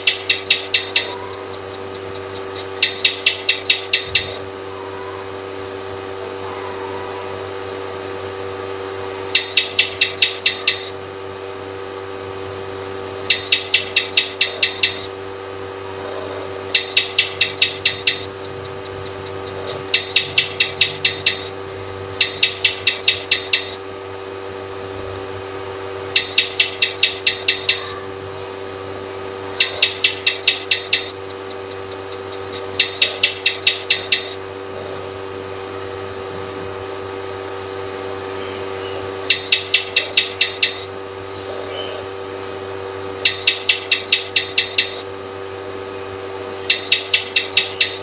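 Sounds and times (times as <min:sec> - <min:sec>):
gecko chirping: 0:00.0 - 0:05.1, 0:09.3 - 0:11.0, 0:13.2 - 0:15.1, 0:16.0 - 0:21.6, 0:22.2 - 0:23.8, 0:26.2 - 0:28.1, 0:29.5 - 0:34.9, 0:38.3 - 0:42.2, 0:43.2 - 0:45.0, 0:46.6 - 0:48.0
steady background hum: 0:00.0 - 0:48.0.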